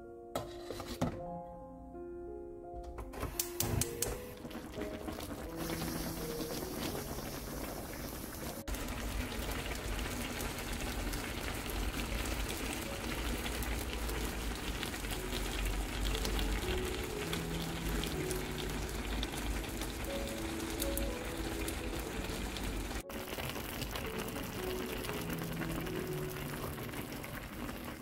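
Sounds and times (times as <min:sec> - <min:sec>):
pot of broth bubbling: 0:03.6 - 0:28.0.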